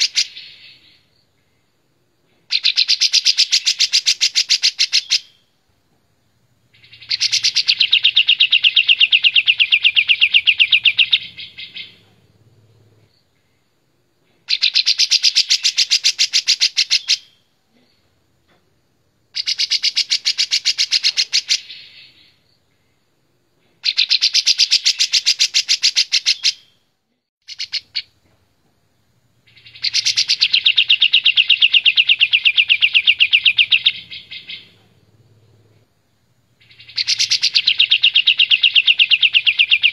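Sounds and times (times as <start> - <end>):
bird chattering song: 0.0 - 1.1, 2.4 - 5.5, 6.7 - 13.6, 14.5 - 18.0, 19.4 - 22.4, 23.8 - 26.8, 27.4 - 28.2, 29.4 - 39.9.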